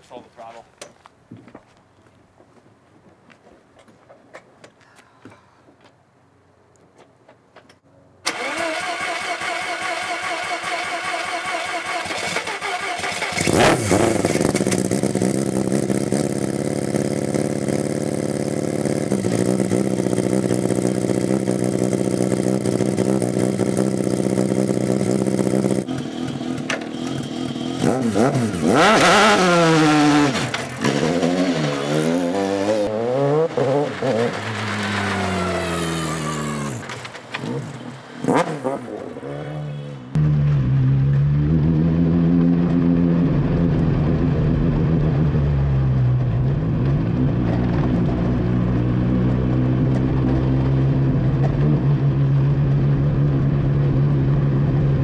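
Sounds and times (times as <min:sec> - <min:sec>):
starter cranking engine: 0:08.3 - 0:16.5
rotary engine idling and revving: 0:08.3 - 0:55.0.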